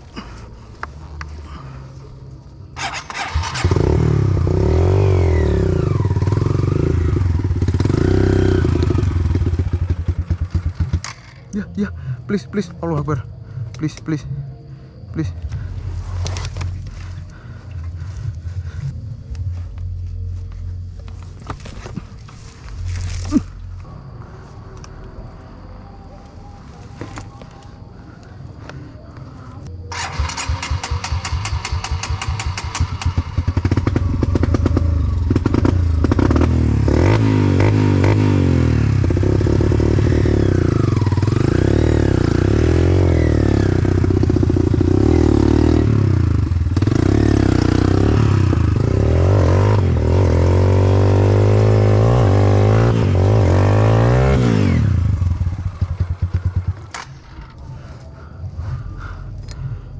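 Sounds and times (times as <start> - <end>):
dirt bike engine revving: 2.8 - 11.4, 29.9 - 57.0.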